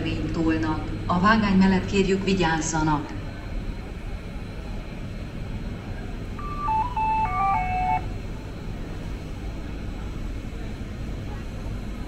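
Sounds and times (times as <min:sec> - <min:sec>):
low rumble of station hall: 0:00.0 - 0:12.0
electronic chime jingle: 0:06.4 - 0:08.0.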